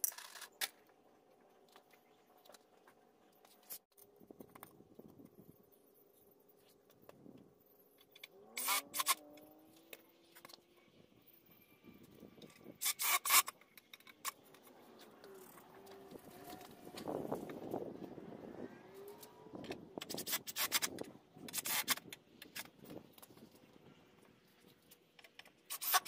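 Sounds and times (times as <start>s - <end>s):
cordless drill driving screws: 8.6s - 9.2s, 12.8s - 13.5s.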